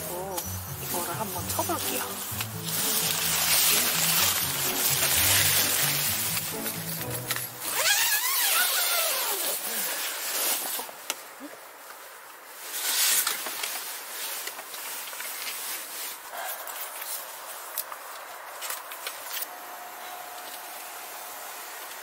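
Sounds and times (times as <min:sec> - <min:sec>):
tent fabric rustling: 0:00.0 - 0:19.5.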